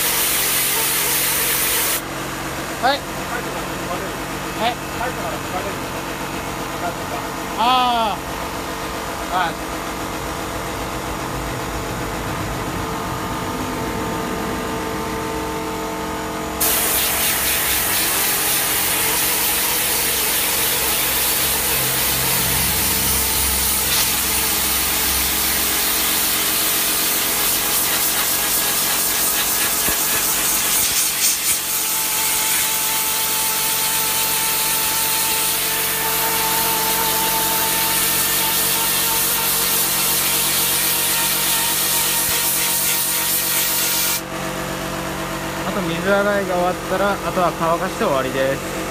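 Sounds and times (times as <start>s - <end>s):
pressure washer motor humming: 0.0s - 48.9s
water spray hissing: 16.6s - 32.8s.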